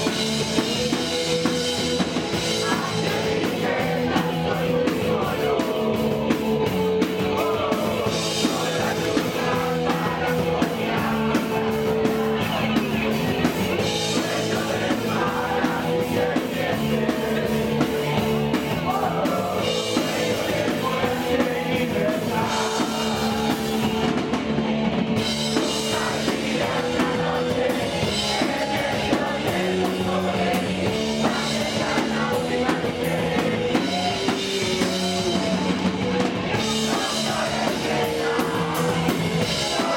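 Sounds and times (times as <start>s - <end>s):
distorted electric guitar and bass: 0.0s - 39.9s
fast drums with cymbals: 0.0s - 39.9s
man singing: 2.0s - 24.1s, 25.6s - 39.9s.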